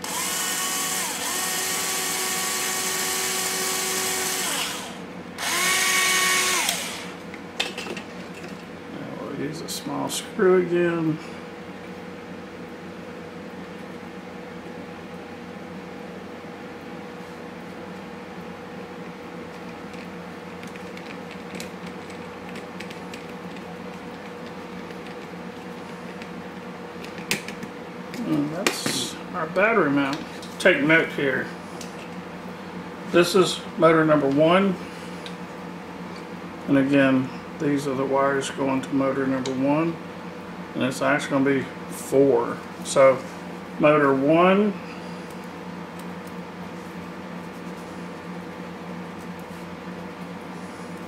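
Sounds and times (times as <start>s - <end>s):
electric drill whining: 0.0s - 7.2s
steady background hum: 0.0s - 51.0s.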